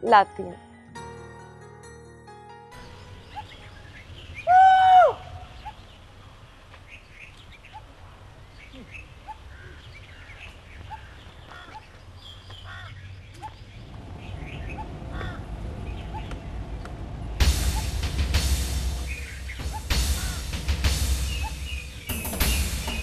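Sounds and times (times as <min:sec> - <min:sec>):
small birds chirping: 0:02.8 - 0:23.0
low rumble: 0:13.6 - 0:23.0
loud musical hit: 0:17.4 - 0:23.0.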